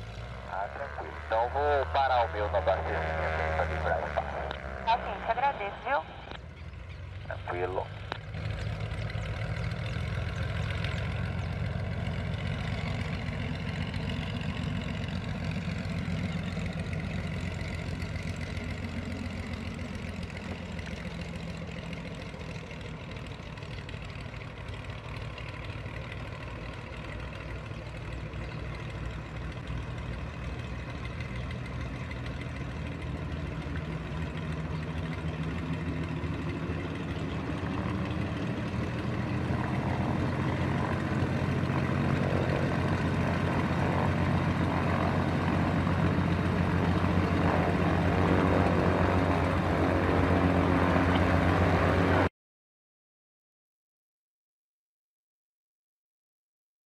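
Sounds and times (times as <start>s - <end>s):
aircraft piston engines droning: 0.0s - 52.3s.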